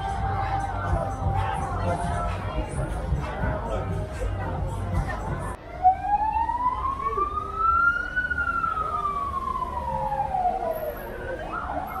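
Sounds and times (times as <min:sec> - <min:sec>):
street traffic rumble: 0:00.0 - 0:12.0
siren wailing: 0:05.6 - 0:12.0.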